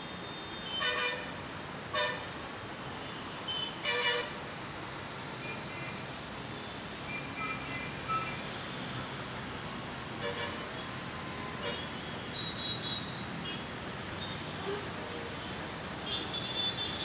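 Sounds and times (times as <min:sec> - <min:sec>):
traffic hum: 0:00.0 - 0:17.0
vehicle horns honking: 0:03.5 - 0:04.4, 0:16.0 - 0:17.0.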